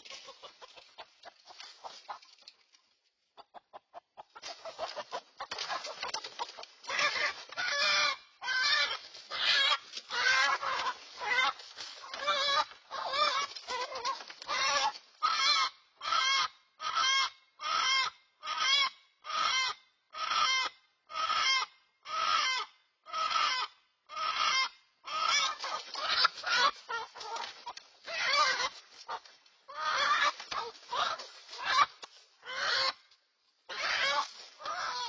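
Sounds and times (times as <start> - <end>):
chicken squawking in distress: 6.9 - 33.0, 33.7 - 35.0.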